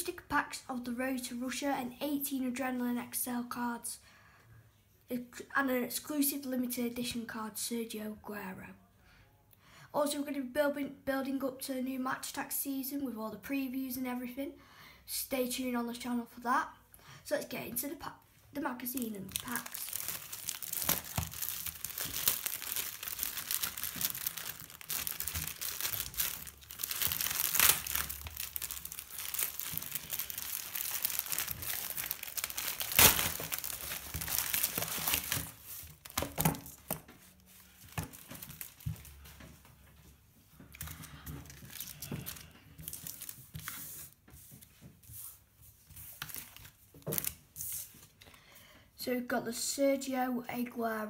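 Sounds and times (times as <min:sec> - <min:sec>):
plastic crinkling: 0:18.8 - 0:39.4, 0:40.7 - 0:44.2, 0:45.9 - 0:48.2
plastic wrapping tearing: 0:18.9 - 0:39.2, 0:40.7 - 0:44.1, 0:46.1 - 0:47.4
sharp plastic crack: 0:19.0 - 0:37.1.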